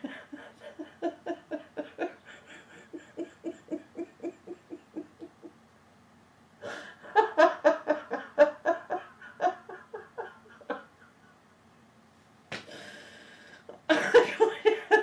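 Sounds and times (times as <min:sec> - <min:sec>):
person laughing hard: 0:00.0 - 0:05.5, 0:06.7 - 0:11.2, 0:13.8 - 0:15.0.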